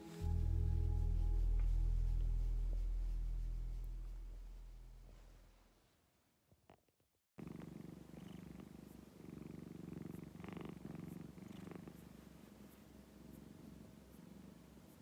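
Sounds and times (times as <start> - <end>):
cat purring: 6.6 - 15.0.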